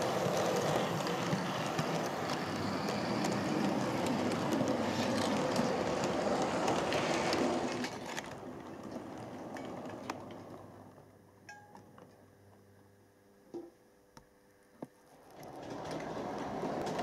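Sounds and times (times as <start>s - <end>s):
model train wheels rumbling: 0.0s - 11.0s, 15.3s - 17.0s.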